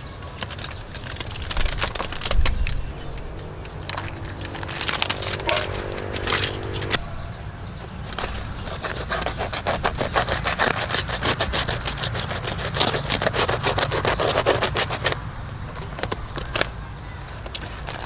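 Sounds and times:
knife sawing through foil: 8.2 - 15.2.

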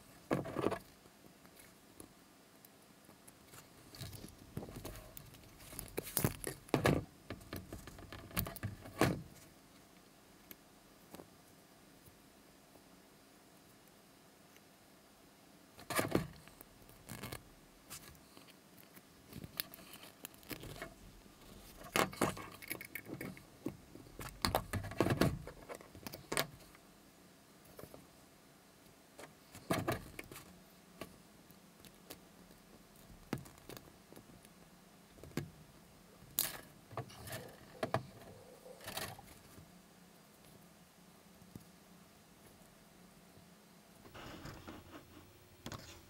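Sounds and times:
small metal clicks and scrapes: 2.6 - 9.4, 15.8 - 26.8, 36.2 - 39.6
handling rustle: 3.3 - 10.0.

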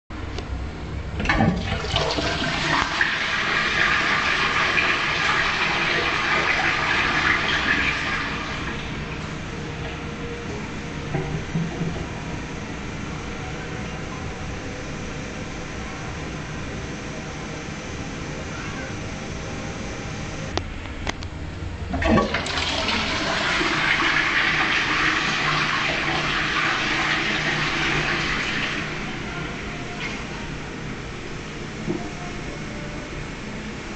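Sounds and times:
toilet flushing: 1.2 - 13.2, 21.9 - 32.9.

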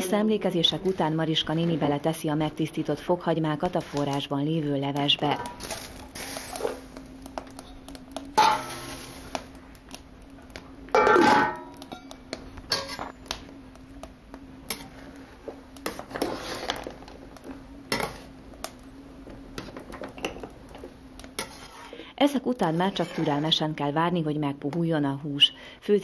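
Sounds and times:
metal spoon scraping a pot: 12.7 - 13.1, 21.4 - 22.0, 22.6 - 23.6.

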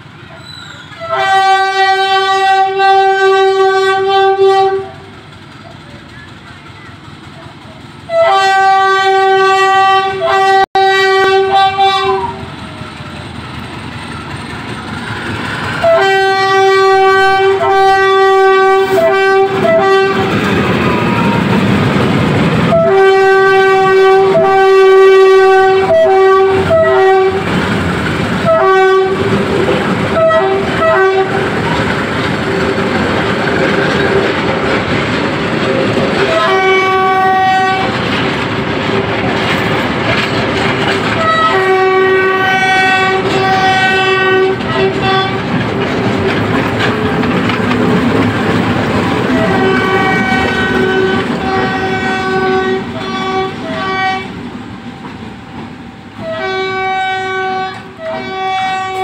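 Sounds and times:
train wheels clattering on rails: 0.0 - 59.0
locomotive horn blasts: 1.0 - 5.1, 8.1 - 12.5, 15.8 - 20.5, 22.7 - 27.5, 28.4 - 29.4, 30.1 - 31.7, 36.2 - 38.0, 41.2 - 45.5, 49.3 - 54.3, 56.2 - 59.0.

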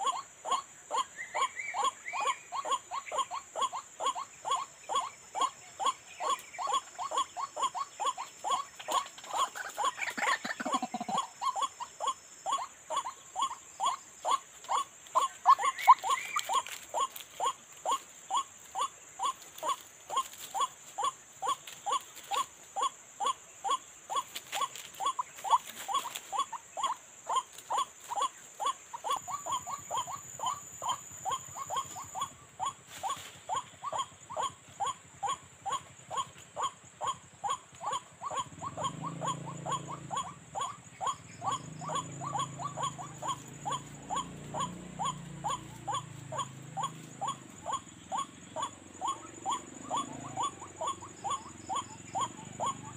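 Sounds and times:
waterhen calling: 0.0 - 11.8, 12.5 - 22.5, 37.5 - 52.9.

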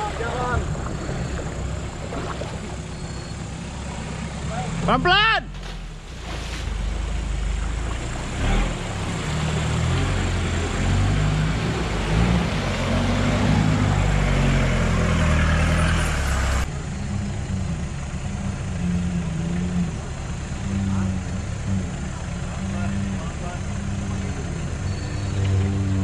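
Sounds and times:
water splashing: 0.0 - 4.8, 5.5 - 14.4
off-road vehicle engine running: 0.0 - 26.0.

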